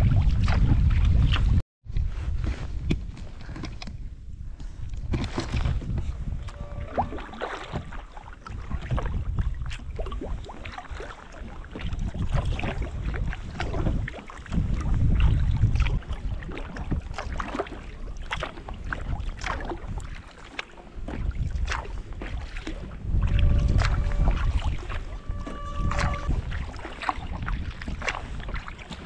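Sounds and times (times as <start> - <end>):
wind buffeting microphone: 0.0 - 29.0
paddle splashing in water: 5.0 - 29.0.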